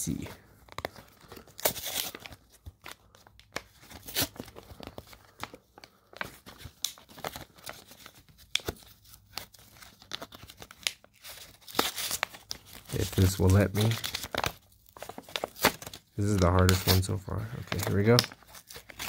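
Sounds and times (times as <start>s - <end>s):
card pack wrapper crinkling and tearing: 0.0s - 19.0s.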